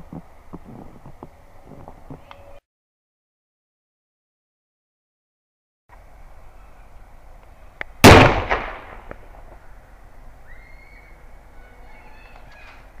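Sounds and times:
plastic bottle bursting with a bang: 0:08.0 - 0:09.2
smaller crack: 0:08.0 - 0:09.6.

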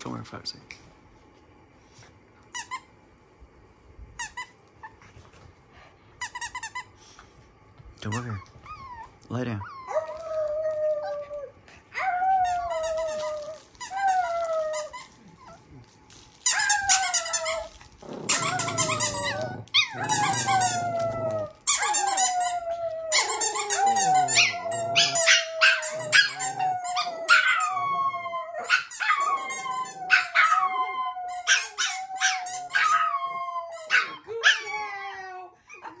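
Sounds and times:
dogs howling: 0:16.5 - 0:36.0.

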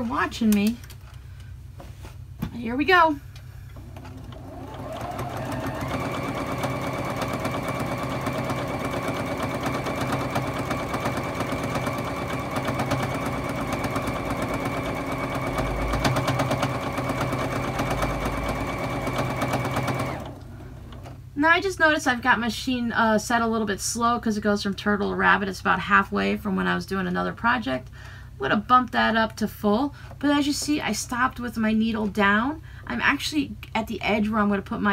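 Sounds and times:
sewing machine stitching: 0:03.8 - 0:21.1.

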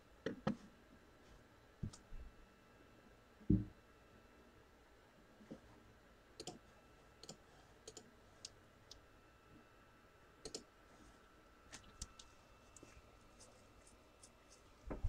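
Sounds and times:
faint computer clicking: 0:06.4 - 0:06.6, 0:07.2 - 0:09.0, 0:10.4 - 0:10.7, 0:11.7 - 0:14.6.

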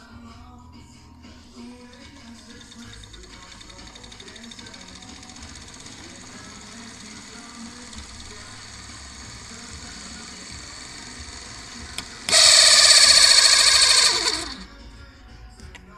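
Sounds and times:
electric motor whirring: 0:02.5 - 0:14.6.

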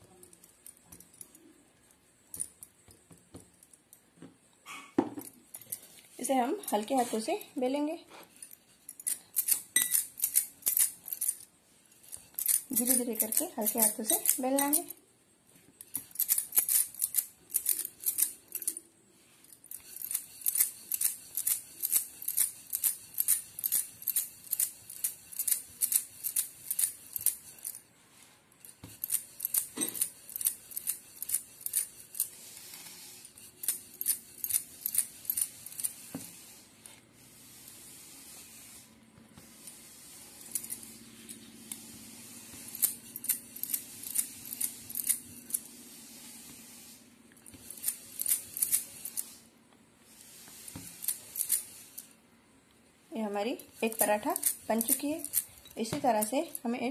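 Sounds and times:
bangles jingling: 0:08.4 - 0:15.0, 0:15.8 - 0:18.8, 0:19.5 - 0:27.9, 0:28.6 - 0:32.3, 0:33.4 - 0:35.9, 0:53.8 - 0:56.7.

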